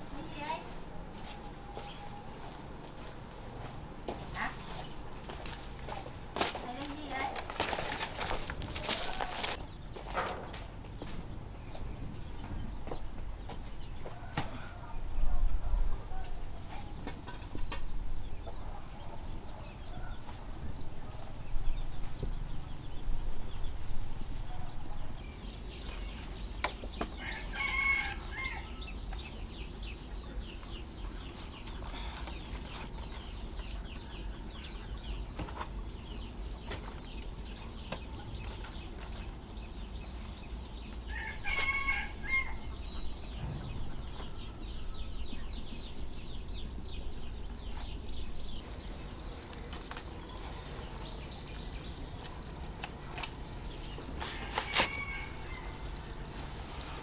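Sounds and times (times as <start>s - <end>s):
scratching and rustling: 4.4s - 11.2s, 48.8s - 57.0s
chickens calling: 24.3s - 57.0s.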